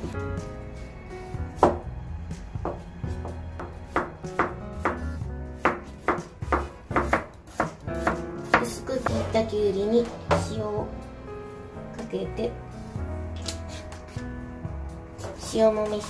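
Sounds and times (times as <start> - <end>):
background music: 0.0 - 16.0
knife chopping cucumber on board: 2.7 - 5.0, 5.6 - 9.3.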